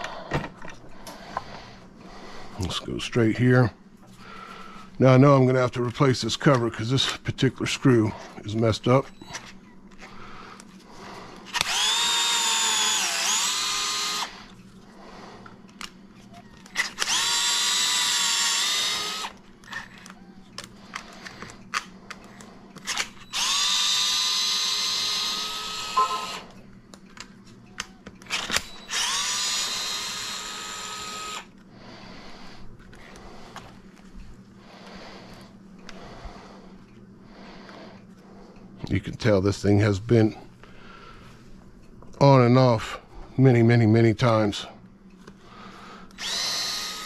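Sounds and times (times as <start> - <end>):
cordless screwdriver whining: 11.5 - 14.5, 16.6 - 21.4, 22.8 - 26.6, 27.8 - 31.6, 46.1 - 47.0.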